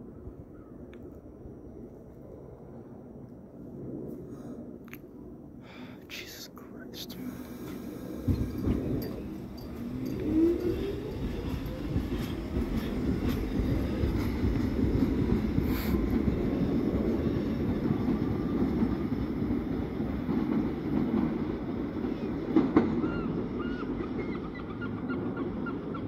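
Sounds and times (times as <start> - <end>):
subway train rumbling: 1.4 - 26.0
train wheels clicking on rail joints: 7.4 - 23.1.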